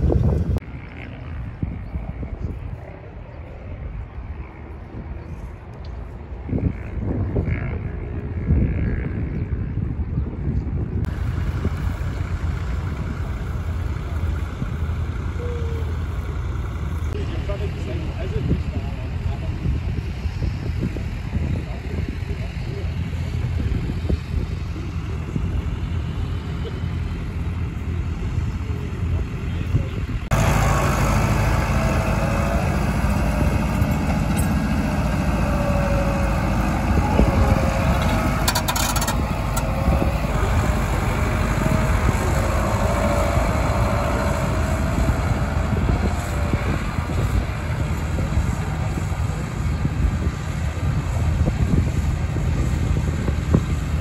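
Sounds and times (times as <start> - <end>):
tractor engine running: 11.0 - 54.0
short rattle: 37.9 - 39.8.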